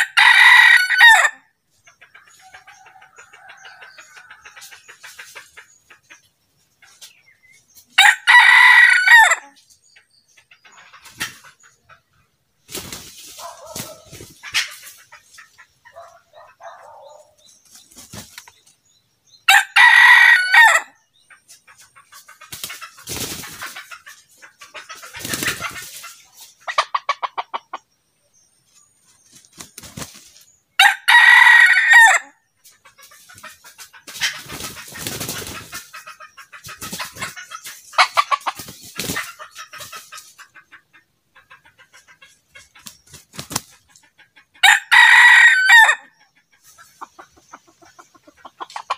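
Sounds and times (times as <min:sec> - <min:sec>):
rooster crowing: 0:00.0 - 0:01.4, 0:08.0 - 0:09.4, 0:19.5 - 0:21.0, 0:30.8 - 0:32.3, 0:44.6 - 0:46.0
soft clucking: 0:01.8 - 0:07.5, 0:21.2 - 0:27.9, 0:32.6 - 0:44.6, 0:46.1 - 0:48.9.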